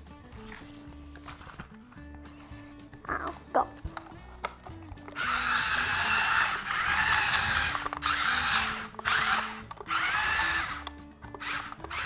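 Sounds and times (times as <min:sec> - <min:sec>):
toy truck motor whirring: 0:03.9 - 0:12.0.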